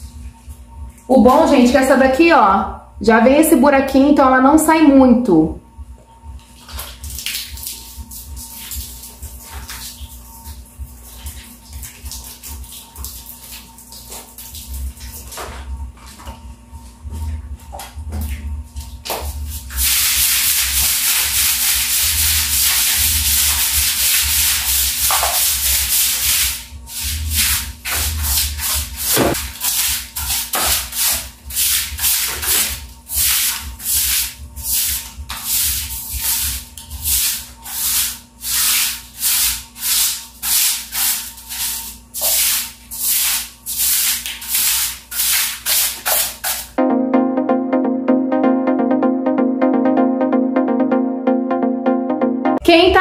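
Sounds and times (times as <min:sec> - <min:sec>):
brush scrubbing wet tiled floor: 0:06.4 - 0:46.8.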